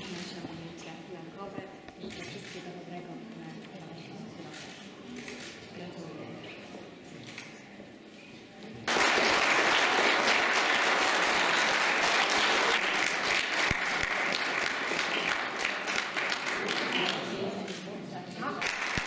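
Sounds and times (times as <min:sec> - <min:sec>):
audience applauding: 0:08.9 - 0:17.5, 0:18.6 - 0:19.0.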